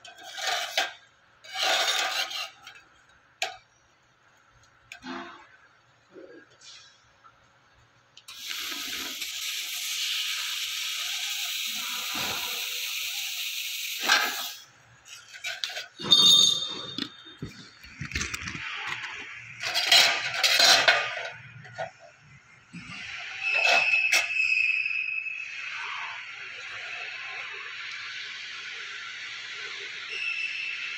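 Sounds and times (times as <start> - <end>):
laser cutter gas jet hissing: 8.3 - 14.7.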